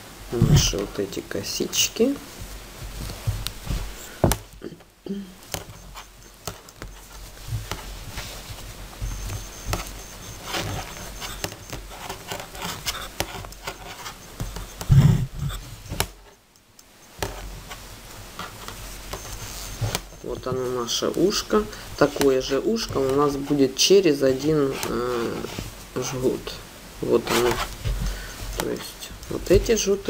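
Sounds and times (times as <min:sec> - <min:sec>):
yarn rustling: 0:00.0 - 0:16.3
knitting needles clicking: 0:04.3 - 0:07.9, 0:09.0 - 0:17.8.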